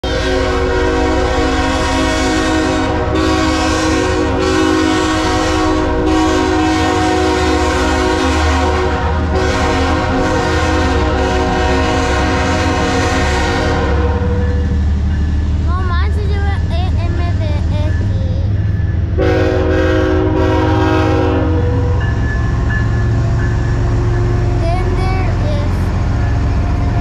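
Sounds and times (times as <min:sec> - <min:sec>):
locomotive air horn chord: 0:00.0 - 0:14.6, 0:19.2 - 0:22.1
low rumble of locomotive engines: 0:00.0 - 0:27.0.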